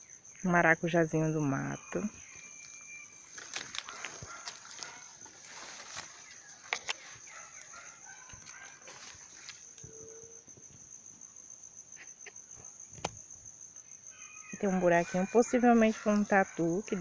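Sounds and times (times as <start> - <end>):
high-pitched insect drone: 0.0 - 17.0
footsteps crunching on leaf litter: 3.2 - 9.8
twig snaps: 3.3 - 4.9, 5.8 - 7.1.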